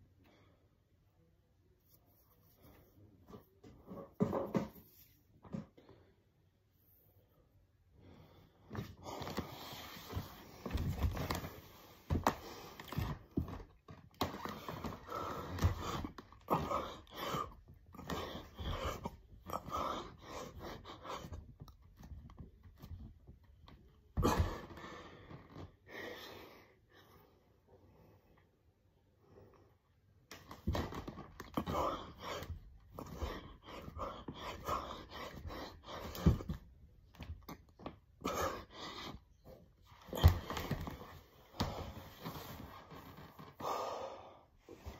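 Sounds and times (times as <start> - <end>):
man panting: 14.7 - 21.4, 31.5 - 36.6
man breathing hard: 43.6 - 44.9.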